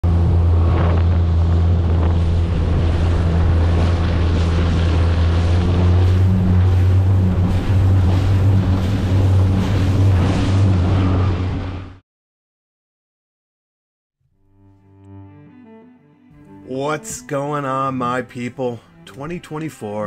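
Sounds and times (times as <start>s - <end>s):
wind buffeting microphone: 0.0s - 11.7s
outboard motor running: 0.0s - 12.0s
water rushing along hull: 0.0s - 12.0s, 16.7s - 20.0s.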